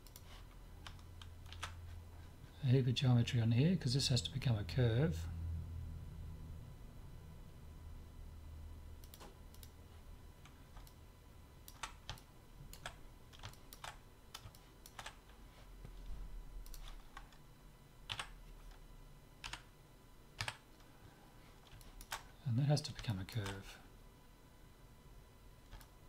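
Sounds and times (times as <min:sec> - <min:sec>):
low hum: 0:00.0 - 0:26.0
keyboard keys clicking: 0:00.8 - 0:01.8.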